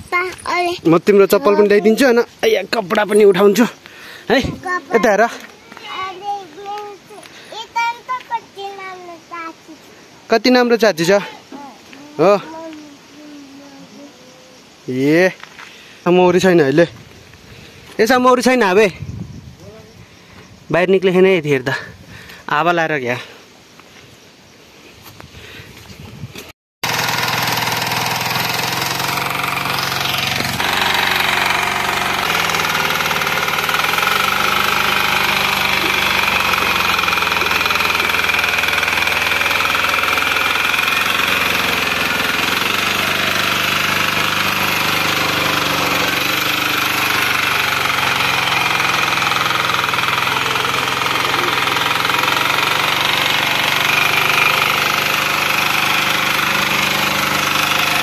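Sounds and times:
power tiller engine running: 0.0 - 6.2, 26.8 - 58.0
tines churning dry soil: 0.0 - 8.0, 26.8 - 58.0.

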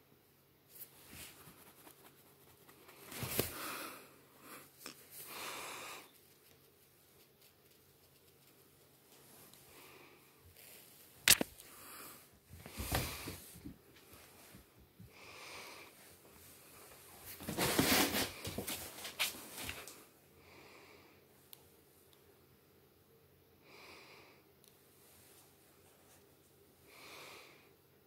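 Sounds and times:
soft breathing: 2.8 - 6.3, 9.1 - 17.2, 26.8 - 27.8.

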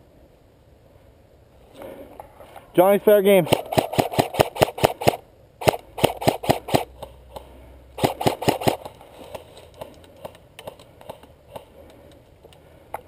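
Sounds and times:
airsoft rifle rapid shots: 3.3 - 6.9, 8.0 - 9.0.

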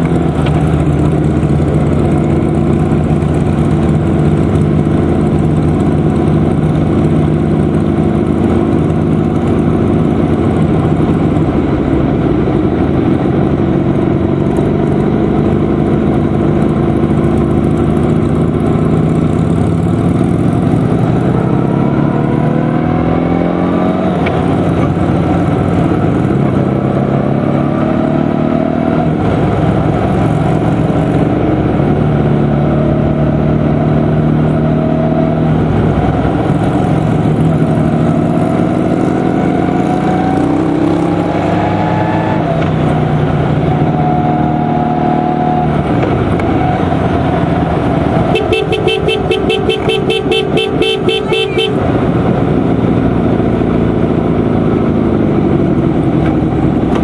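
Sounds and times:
motorcycle engines: 0.0 - 57.0
horn beeping in short pulses: 48.3 - 51.8.

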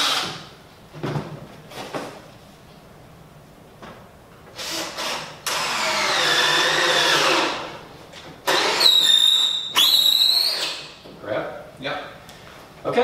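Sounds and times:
power drill driving screws: 0.0 - 0.5, 4.6 - 7.7, 8.5 - 10.8.

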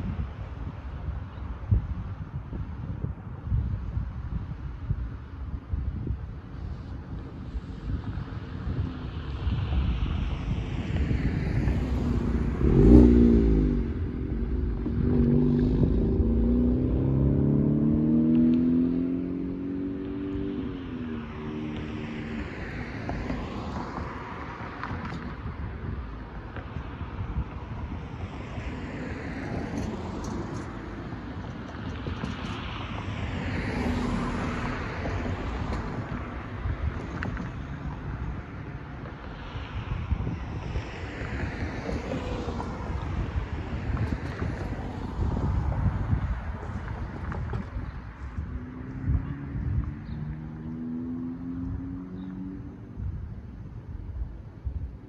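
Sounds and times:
wind buffeting microphone: 0.0 - 55.0
cars driving over crossing: 7.1 - 55.0
car driving past: 11.1 - 24.9, 32.3 - 38.0
car engine accelerating away: 12.1 - 20.6.

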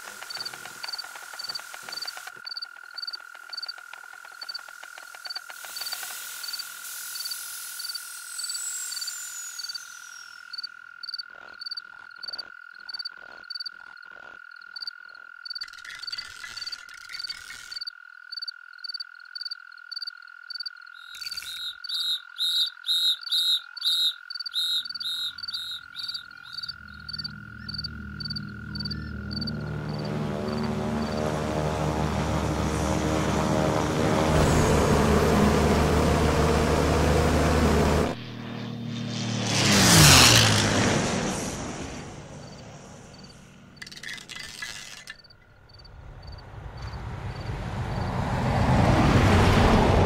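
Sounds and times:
aircraft engine drone: 0.0 - 10.6, 24.8 - 50.0
frogs croaking: 0.0 - 33.9, 42.4 - 48.1.

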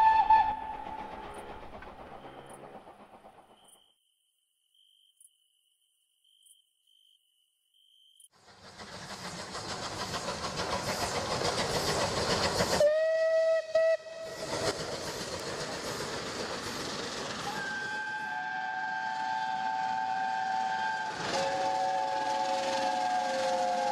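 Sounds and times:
steam whistle: 0.0 - 1.4, 12.8 - 14.5, 17.4 - 23.9
steam locomotive chuffing: 0.0 - 3.8, 8.4 - 23.9.

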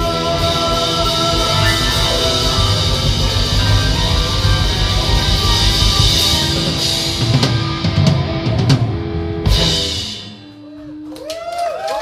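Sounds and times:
live blues rock band: 0.0 - 11.2
drum and cymbal hit: 0.6 - 8.4
audience shouting and cheering: 1.4 - 6.2, 10.4 - 12.0.

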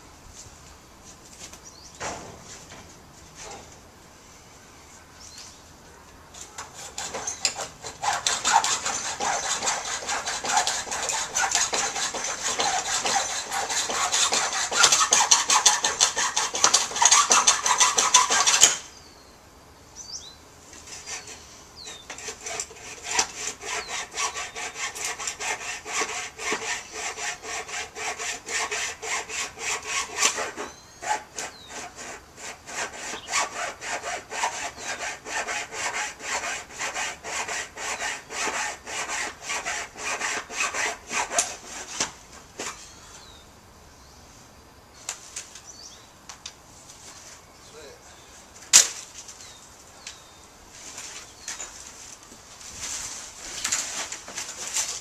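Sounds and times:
hand saw cutting wood: 6.4 - 18.9, 20.7 - 42.8, 52.8 - 55.0.

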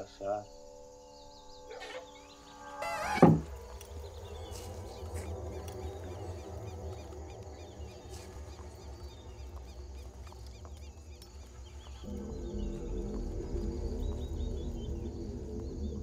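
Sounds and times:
high chirps of small creatures: 0.0 - 16.0
low pitched drone: 0.0 - 16.0
low steady rumble: 3.5 - 16.0.

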